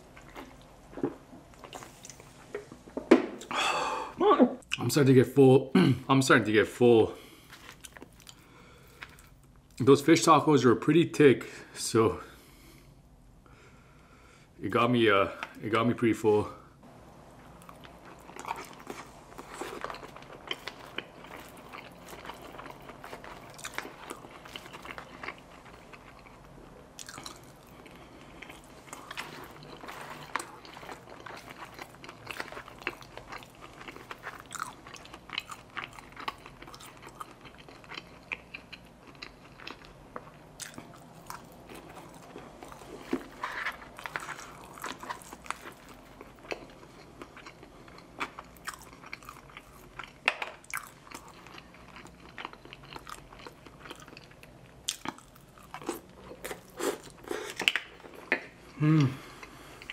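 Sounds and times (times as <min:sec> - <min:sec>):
person chewing crunchy food: 0:00.0 - 0:02.5, 0:07.4 - 0:09.5, 0:17.5 - 0:59.9.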